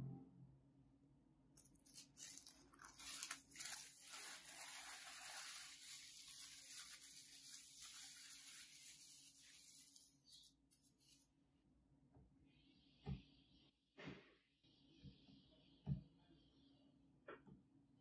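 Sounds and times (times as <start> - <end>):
paper being crumpled: 1.6 - 11.2.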